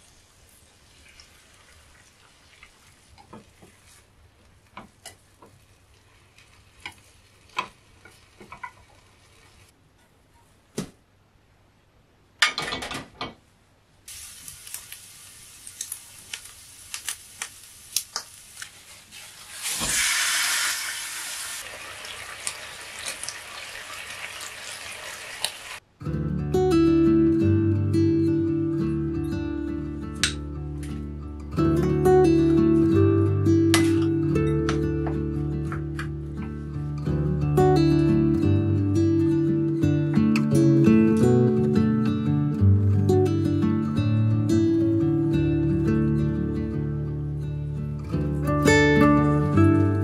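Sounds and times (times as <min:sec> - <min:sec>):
food sizzling in a pan: 0:00.0 - 0:04.2, 0:04.8 - 0:09.7, 0:14.1 - 0:25.8.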